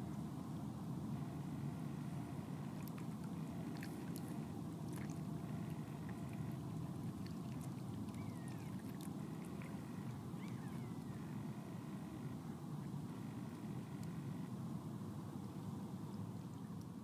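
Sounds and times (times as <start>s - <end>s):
river flowing: 1.1s - 14.5s
swans splashing in water: 2.3s - 12.3s
faint high chirps: 8.1s - 12.4s.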